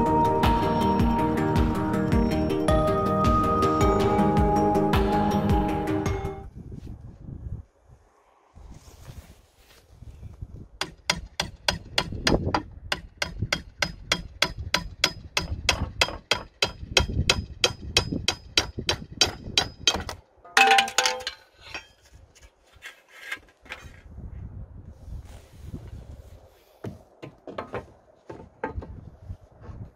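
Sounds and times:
ringing metal clang: 19.9 - 21.9.

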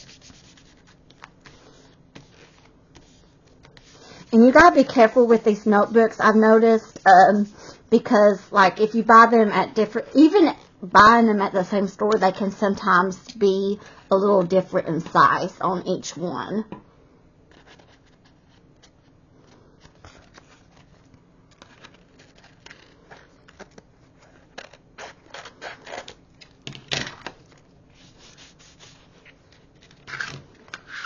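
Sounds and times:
paper scraping and tapping: 0.0 - 4.0
paper rustling: 0.0 - 5.1, 17.5 - 31.0.

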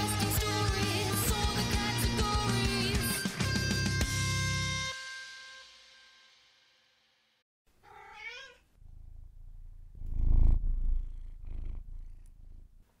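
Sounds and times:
low pulsing purr-like rumble: 8.8 - 12.8.

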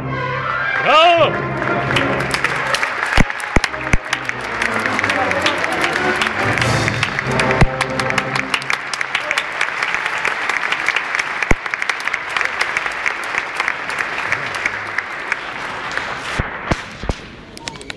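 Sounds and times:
audience applauding: 0.6 - 16.8.

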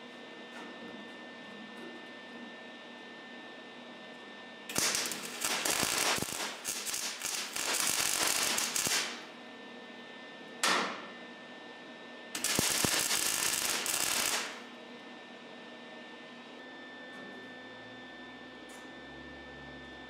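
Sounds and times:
welder arc crackling: 4.7 - 9.3, 12.4 - 14.7.

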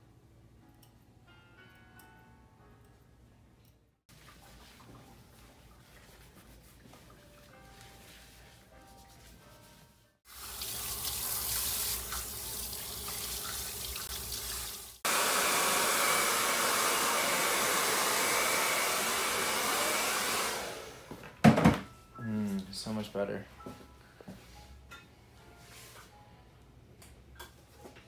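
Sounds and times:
water running: 4.1 - 7.9, 10.3 - 15.4
hair dryer blowing: 15.0 - 21.2.

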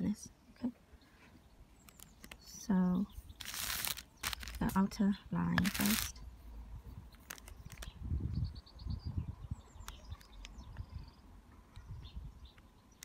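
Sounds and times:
bird chirps: 7.0 - 13.0.

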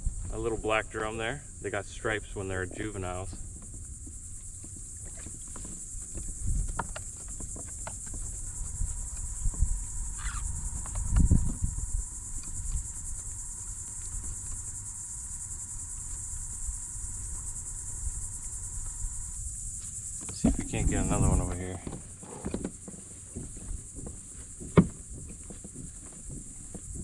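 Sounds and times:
high-pitched insect buzz: 0.0 - 27.0
low thumps and knocks: 20.2 - 27.0.

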